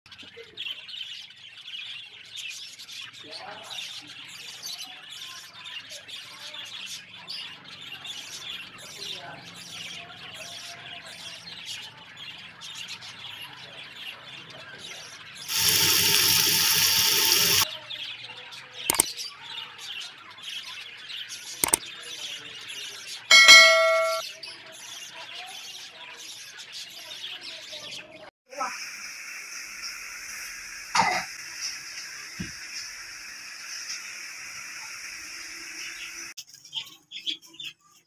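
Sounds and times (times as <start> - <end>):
loud steady hiss: 15.5 - 17.6.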